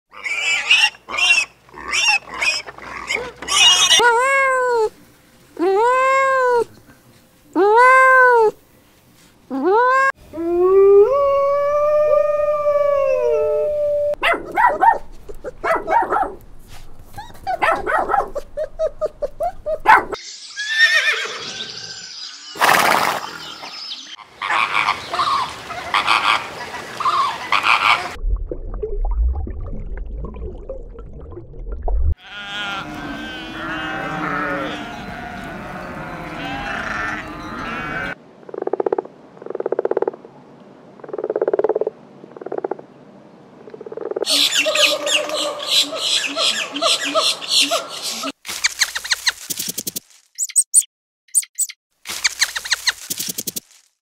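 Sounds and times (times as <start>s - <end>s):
pigs squealing and grunting: 0.1s - 4.0s, 32.2s - 38.2s
small dog barking: 14.2s - 16.4s, 17.5s - 18.5s, 19.8s - 20.2s, 44.4s - 47.9s
drawn-out rising and falling calls: 18.7s - 28.2s, 32.2s - 38.2s, 44.1s - 53.8s
low rumbling noise: 28.2s - 32.2s
rough noisy animal calls: 32.2s - 38.2s.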